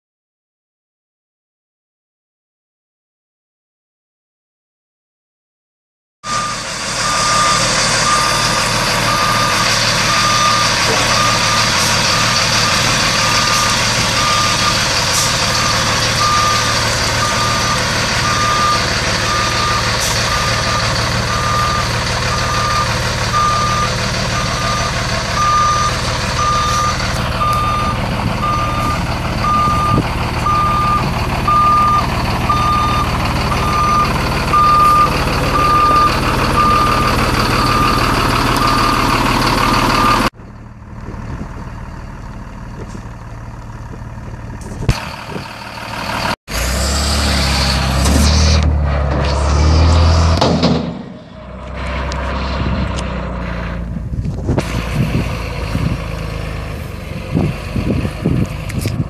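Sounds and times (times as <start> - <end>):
truck backup alarm beeping: 6.2 - 40.3
diesel engine rumbling: 6.2 - 59.0.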